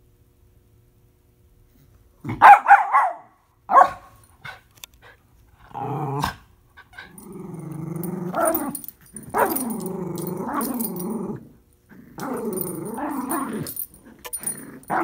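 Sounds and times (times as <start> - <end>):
dog barking: 2.3 - 4.2, 9.3 - 9.6
dogs play-growling: 4.4 - 15.0.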